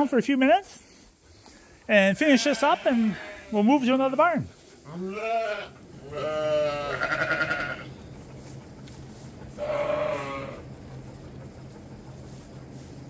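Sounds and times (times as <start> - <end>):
steady low hum: 0.0 - 13.0
sheep bleating: 2.2 - 3.8, 4.8 - 7.9, 9.6 - 10.6.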